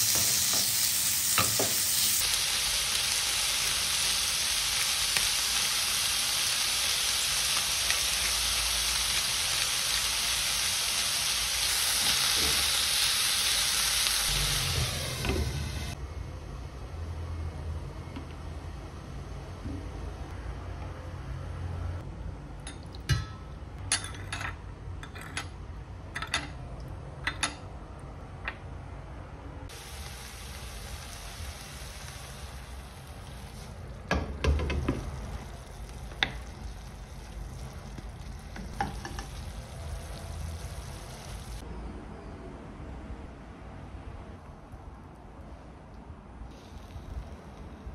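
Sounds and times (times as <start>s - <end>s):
knocks of stirring in pan: 0.0s - 2.2s, 33.5s - 41.6s
food sizzling in frying pan: 0.0s - 16.0s, 29.7s - 41.6s
metal spoon clinking on glass bowl: 22.7s - 25.4s.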